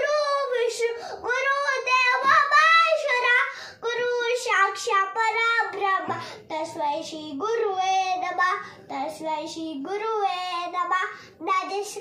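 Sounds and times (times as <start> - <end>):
boy breathing between phrases: 3.5 - 3.8.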